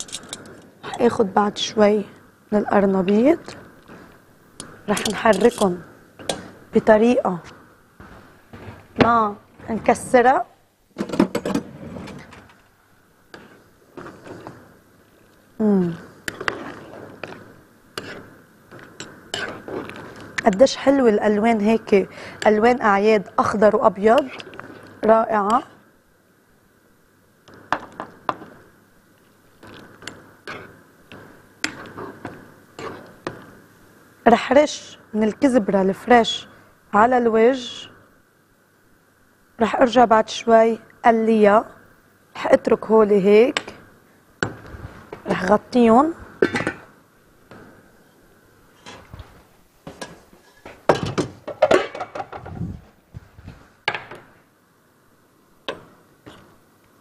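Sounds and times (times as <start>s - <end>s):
spoon scraping a pot: 4.6s - 6.5s, 16.2s - 20.7s, 24.1s - 24.9s, 29.6s - 30.7s, 31.6s - 33.3s
pots and pans clanking: 49.9s - 52.4s.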